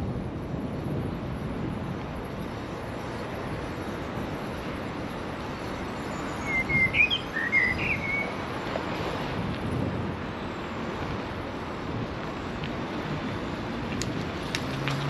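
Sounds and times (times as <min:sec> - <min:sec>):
traffic rush: 0:00.0 - 0:15.0
wind noise: 0:00.0 - 0:15.0
bird chirping: 0:06.1 - 0:08.4.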